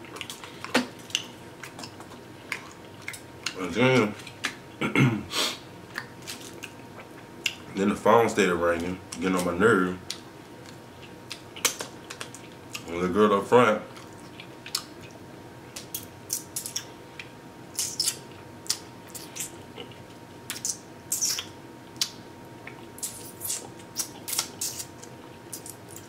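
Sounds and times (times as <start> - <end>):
wet lip smacks while chewing: 15.8 - 26.0
sucking sauce off fingers: 23.0 - 25.8.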